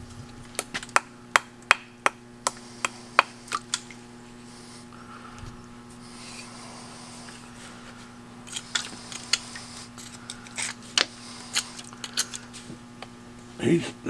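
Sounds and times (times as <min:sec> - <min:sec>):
metal pick scraping rust: 0:08.4 - 0:12.6.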